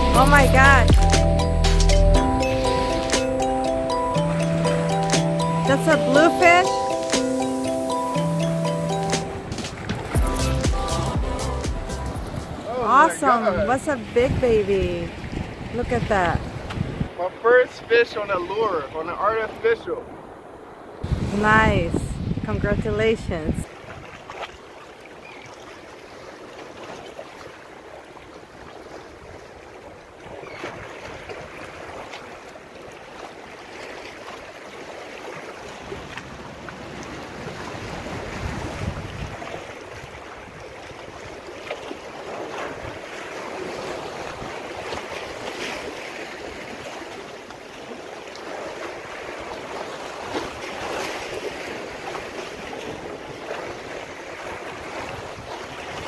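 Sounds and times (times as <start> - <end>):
wind buffeting microphone: 12.1 - 12.8, 13.5 - 17.2, 20.1 - 24.3, 37.3 - 41.5, 50.2 - 56.0
waves breaking against rocks: 23.6 - 56.0.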